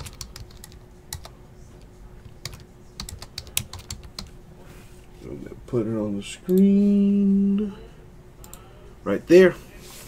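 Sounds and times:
typing on a keyboard: 0.0 - 1.3, 2.3 - 4.3.

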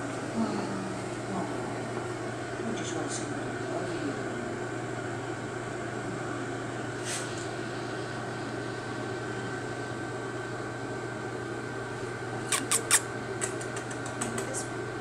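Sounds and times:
room ventilation hum: 0.0 - 15.0.

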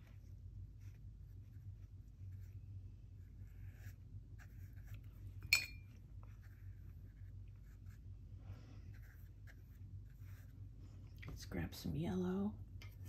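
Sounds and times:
brush strokes on paper: 0.0 - 5.4, 6.2 - 10.7.

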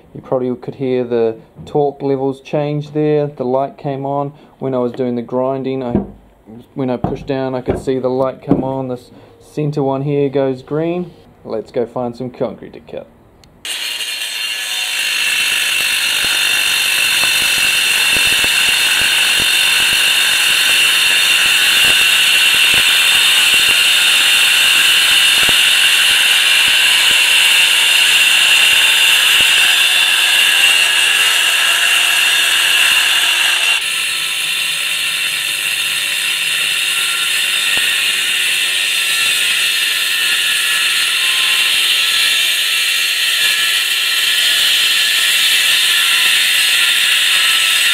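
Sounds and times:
angle grinder cutting concrete: 13.7 - 47.9.

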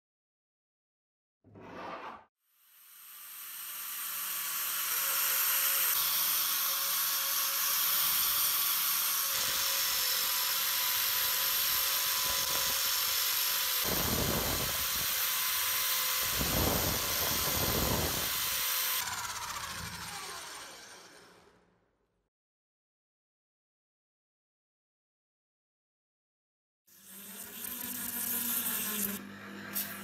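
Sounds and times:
power tool motor whine: 2.7 - 21.7, 27.0 - 30.0.

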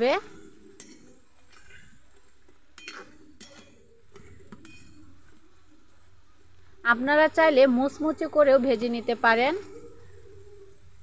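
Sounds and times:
metal spatula clinking on pan: 2.8 - 3.7.

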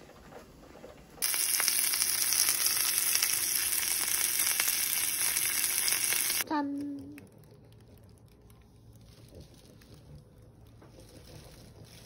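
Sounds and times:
meat sizzling in hot oil: 1.2 - 6.4.

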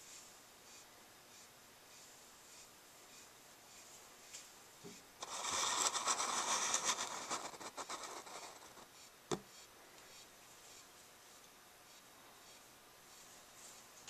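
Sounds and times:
beetle legs scratching plastic: 5.2 - 8.9.

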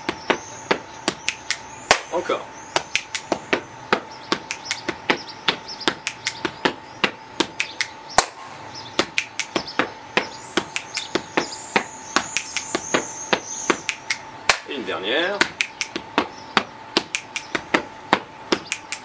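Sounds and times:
hand claps: 0.3 - 2.1, 2.8 - 8.4, 9.0 - 14.7, 15.4 - 19.0
finger clicks: 1.2 - 2.0, 2.8 - 3.4, 4.3 - 5.0, 5.9 - 6.6, 7.4 - 8.3, 9.0 - 11.5, 12.2 - 12.8, 13.8 - 14.6, 15.4 - 16.0, 17.0 - 17.6, 18.6 - 19.0
hand slaps on body: 2.8 - 3.6, 4.3 - 5.0, 5.9 - 8.4, 9.0 - 11.5, 12.2 - 14.7, 15.4 - 19.0.

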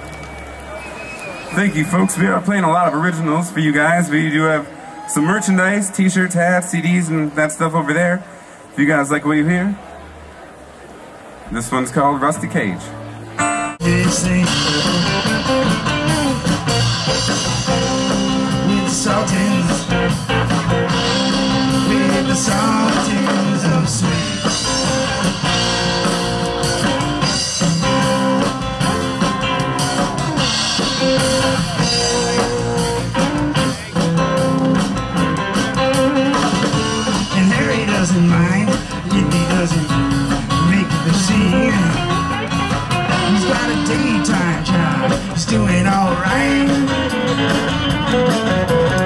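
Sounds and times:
live rock band playing: 12.3 - 49.0.

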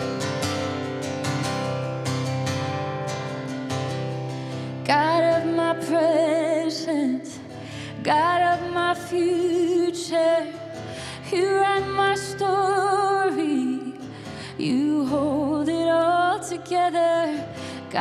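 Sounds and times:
acoustic guitar: 0.0 - 18.0
woman singing worship song: 4.8 - 18.0.

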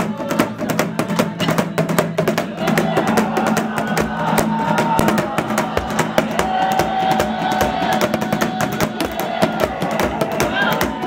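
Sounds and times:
rapid drum percussion: 0.0 - 11.0.

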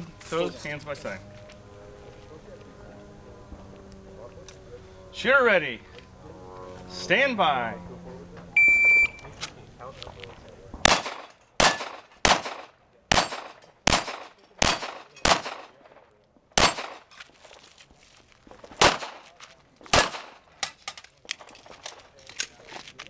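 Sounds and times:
handgun shots: 10.8 - 15.8, 16.6 - 17.1, 18.8 - 19.3, 19.9 - 20.8.

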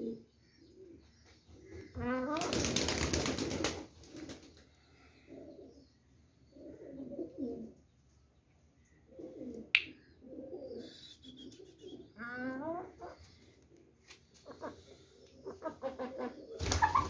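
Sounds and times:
pigeons cooing: 0.0 - 7.8, 8.9 - 13.7, 14.4 - 17.0
wings flapping: 2.4 - 4.6, 16.6 - 17.0.

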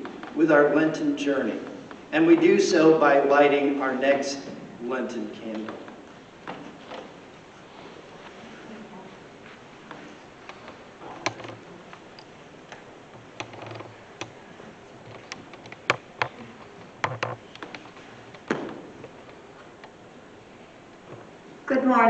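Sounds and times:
footsteps on floor: 6.4 - 11.2
microphone stand handled: 15.0 - 19.9.

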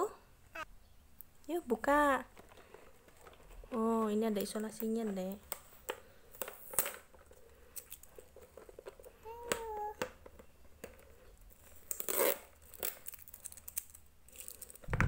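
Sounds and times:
tape crackling: 2.2 - 15.0
tape ripping: 11.8 - 15.0.

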